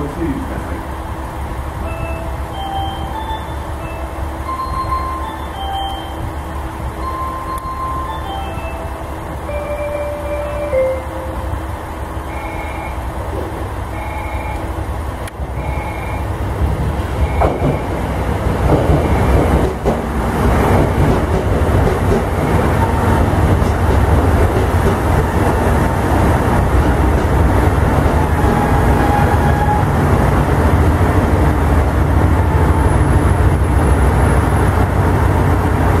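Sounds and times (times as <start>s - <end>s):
diesel train engine and wheel rumble: 0.0s - 36.0s
short station chime: 1.8s - 6.4s, 7.0s - 11.6s.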